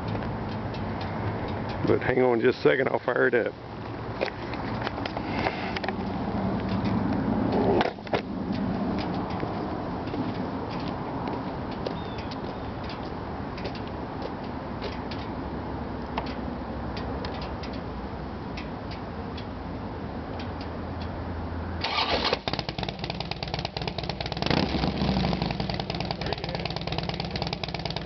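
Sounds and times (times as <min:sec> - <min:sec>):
motorcycle engine starting and running: 0:21.8 - 0:28.0.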